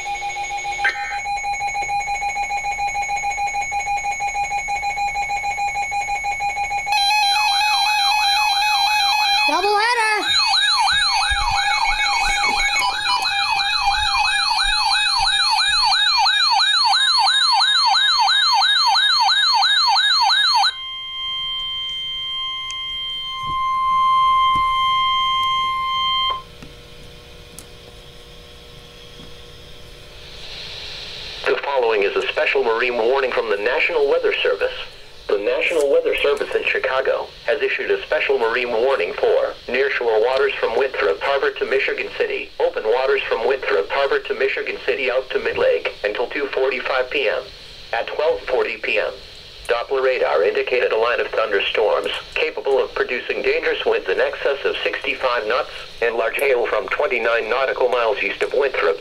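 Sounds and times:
steady electronic beep-tone: 0:00.0 - 0:09.6, 0:10.2 - 0:16.3, 0:20.6 - 0:26.4
warbling siren-like alarm: 0:00.0 - 0:47.5.

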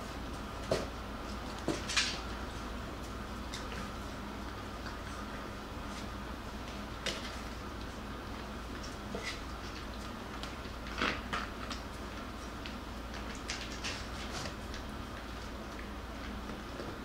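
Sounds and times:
puppies scratching cardboard: 0:02.6 - 0:16.9.

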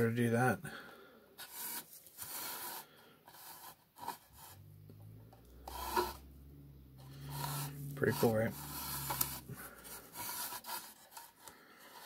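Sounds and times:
low steady hum: 0:04.3 - 0:10.6
plastic pieces scraping on table: 0:07.0 - 0:12.0.

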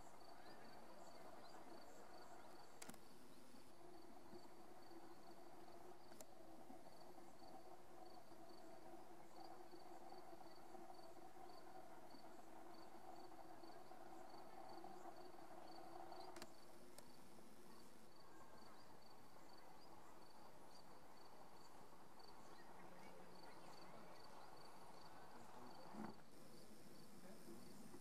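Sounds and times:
faint clicks: 0:02.8 - 0:03.0, 0:16.2 - 0:17.1.

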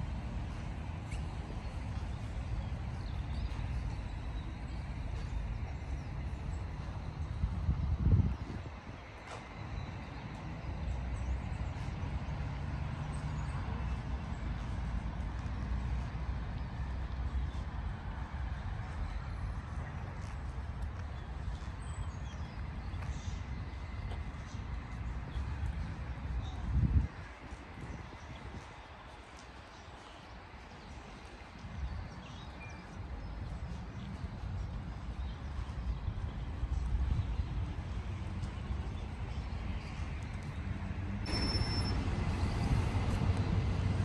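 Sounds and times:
distant city traffic rumble: 0:00.0 - 0:44.0
faint high whistle: 0:41.3 - 0:42.1.

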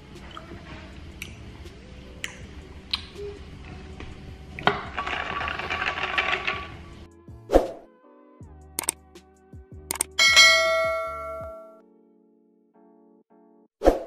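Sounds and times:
lip smacks: 0:01.2 - 0:01.4, 0:02.2 - 0:03.2.

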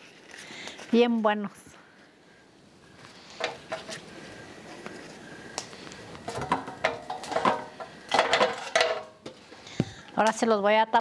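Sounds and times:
pot clatter: 0:06.3 - 0:09.2.

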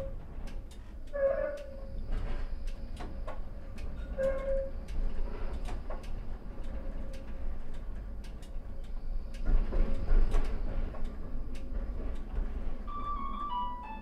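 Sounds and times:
tram wheels rumbling on rail: 0:00.0 - 0:14.0
whining tones stepping down: 0:12.9 - 0:14.0.

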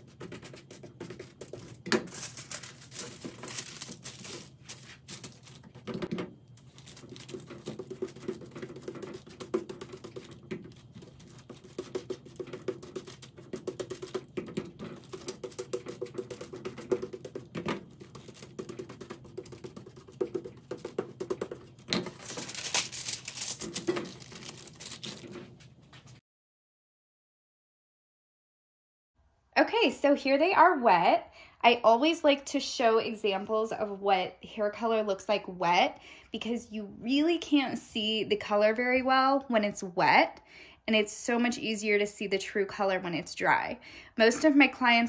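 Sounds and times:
brush tapping and stroking: 0:00.0 - 0:02.3, 0:02.9 - 0:25.6
aluminium foil crinkling: 0:00.0 - 0:05.9, 0:06.6 - 0:20.2, 0:21.9 - 0:26.2.

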